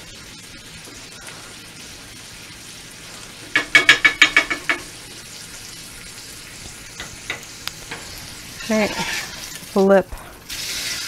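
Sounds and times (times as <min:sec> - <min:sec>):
ham sizzling in butter: 0:00.0 - 0:11.0
spoon clinking against pan: 0:03.6 - 0:04.9.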